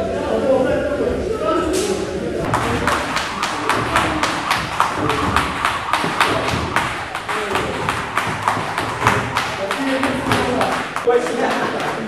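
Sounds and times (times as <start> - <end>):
sharp punching slaps: 2.5 - 11.1.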